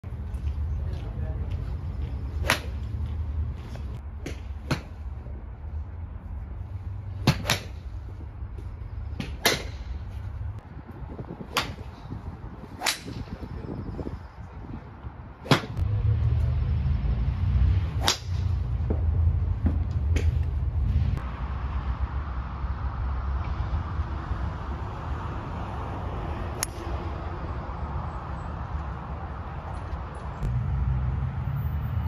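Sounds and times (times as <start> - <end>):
low rumble: 15.8 - 28.1.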